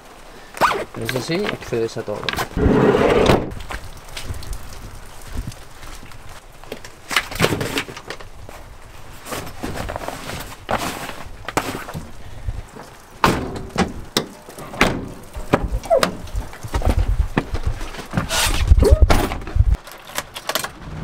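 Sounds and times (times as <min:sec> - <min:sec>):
gear moved in van cargo bay: 0:07.1 - 0:14.0, 0:17.8 - 0:21.0.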